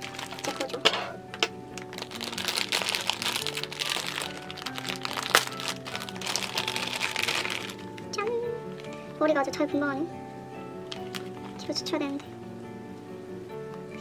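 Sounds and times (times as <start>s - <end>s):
sharp plastic crack: 0.0s - 7.9s, 10.9s - 11.6s
plastic bag crinkling: 0.0s - 8.0s, 10.9s - 11.6s
background music: 0.0s - 14.0s.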